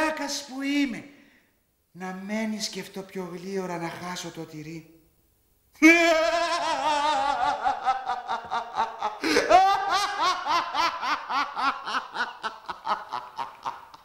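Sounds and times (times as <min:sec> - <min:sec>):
man laughing: 0:05.8 - 0:14.0.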